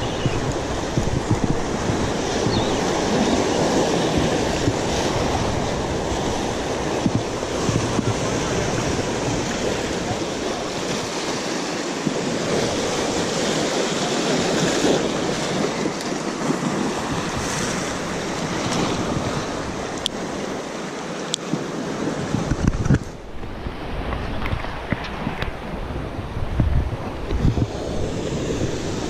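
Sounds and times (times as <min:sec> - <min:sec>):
surf breaking against rocks: 0:00.0 - 0:29.0
wind on microphone: 0:00.0 - 0:29.0.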